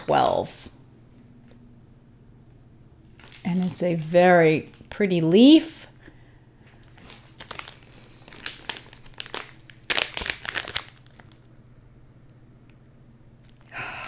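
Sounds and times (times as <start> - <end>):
plastic bag crinkling: 3.0 - 5.6, 6.6 - 11.6.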